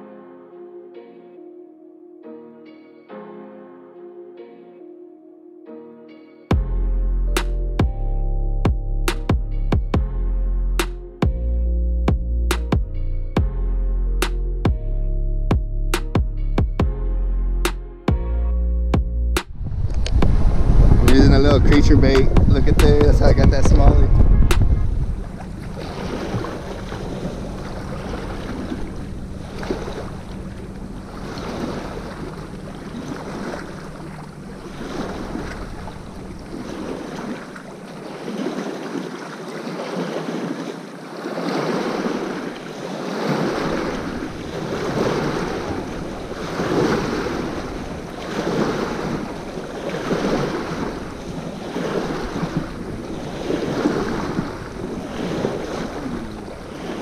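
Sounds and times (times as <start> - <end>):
wind buffeting microphone: 19.4 - 37.9, 43.3 - 57.0
waves lapping on rocky shore: 19.5 - 57.0.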